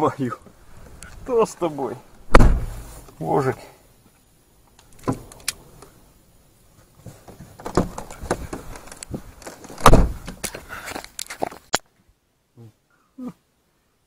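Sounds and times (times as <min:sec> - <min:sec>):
car door closing thud: 0:02.3 - 0:02.9, 0:09.8 - 0:10.3
bumping and rustling in car: 0:02.3 - 0:03.1, 0:07.0 - 0:10.5.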